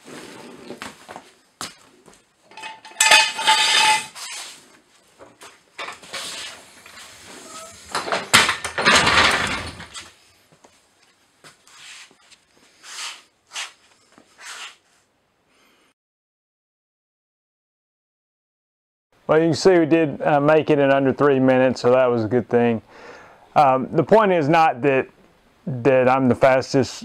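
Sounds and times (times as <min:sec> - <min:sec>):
jack stands clanking on concrete: 0:02.5 - 0:04.2, 0:07.5 - 0:09.9
floor jack lowering: 0:02.5 - 0:04.4, 0:05.8 - 0:10.1.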